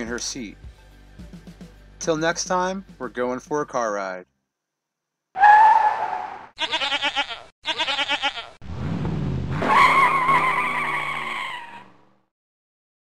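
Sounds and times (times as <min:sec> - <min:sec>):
goat bleating: 0:06.6 - 0:08.6.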